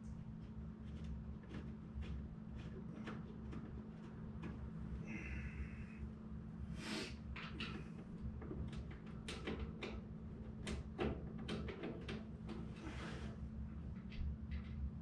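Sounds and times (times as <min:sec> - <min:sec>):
steady low hum: 0:00.0 - 0:15.0
tools knocking and clicking: 0:07.4 - 0:10.0, 0:10.6 - 0:12.6.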